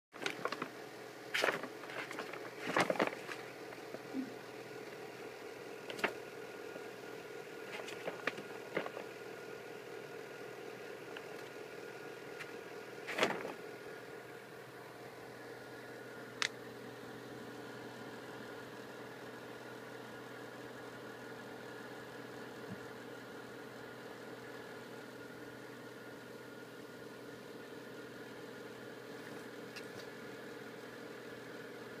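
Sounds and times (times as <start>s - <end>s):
paper bag rustling: 0.2s - 4.1s, 5.9s - 6.2s, 7.6s - 9.2s, 12.4s - 13.6s
machine hum: 0.2s - 32.0s.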